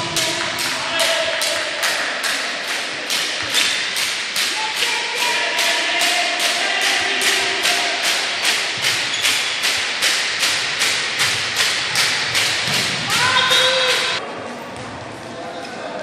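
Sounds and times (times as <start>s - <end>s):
rhythmic percussion: 0.0s - 14.2s
person shouting: 13.1s - 14.2s.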